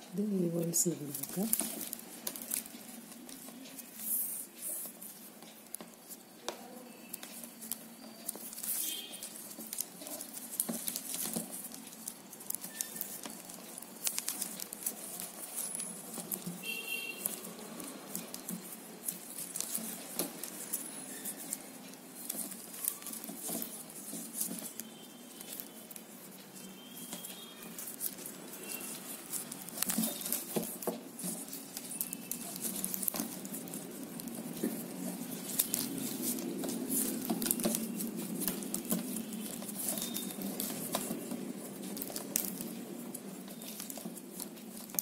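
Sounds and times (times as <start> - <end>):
plastic wire clicking and rustling: 0.0 - 45.0
high squeaks: 12.5 - 18.0, 19.1 - 30.6, 37.0 - 41.0.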